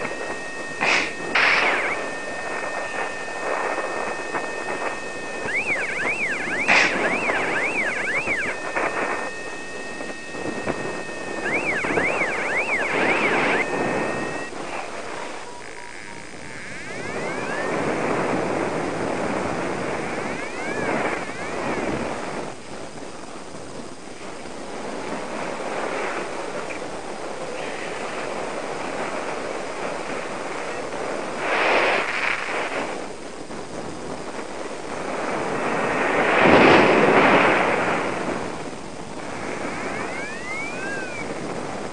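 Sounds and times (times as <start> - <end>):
steady beeps: 0.0 - 22.4, 39.2 - 41.7
warbling electronic tones: 0.0 - 22.7, 39.2 - 41.9
wind rushing over microphone: 0.0 - 41.9.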